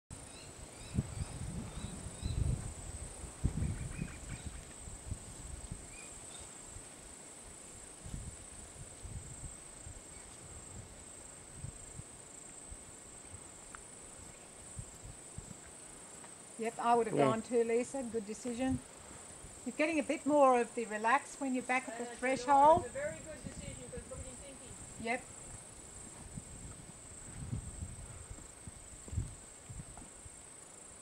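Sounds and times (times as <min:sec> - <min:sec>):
wind on microphone: 0:00.1 - 0:06.9, 0:08.0 - 0:13.5, 0:22.2 - 0:30.4
insects trilling: 0:00.2 - 0:31.0.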